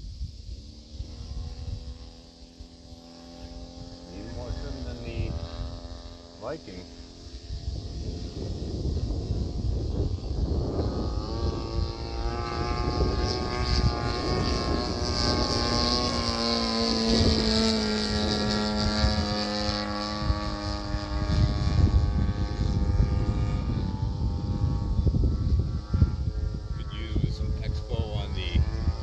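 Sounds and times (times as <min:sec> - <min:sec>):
model airplane motor drone: 0:00.0 - 0:29.0.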